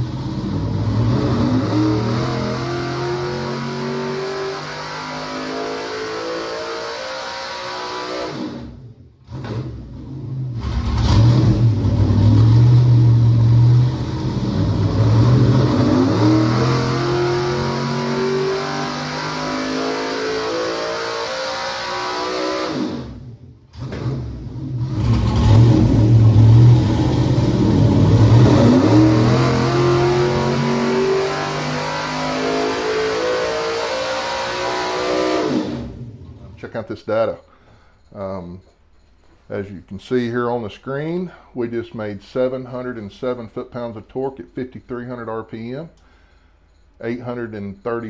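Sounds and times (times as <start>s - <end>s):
engine revving on dyno: 0.0s - 36.6s.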